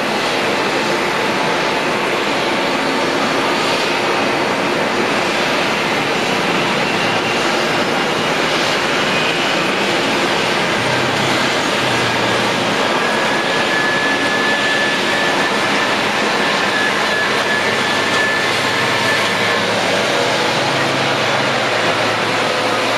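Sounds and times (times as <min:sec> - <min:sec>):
jet engines idling: 0:00.0 - 0:22.9.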